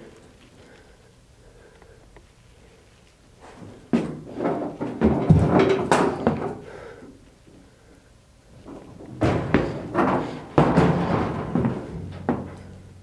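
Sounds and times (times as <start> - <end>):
irregular knocks and thuds: 4.0 - 6.6, 8.6 - 12.9.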